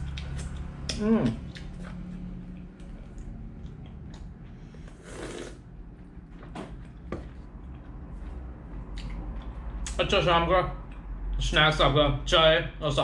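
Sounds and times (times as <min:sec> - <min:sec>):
person slurping tea: 0:04.7 - 0:05.7.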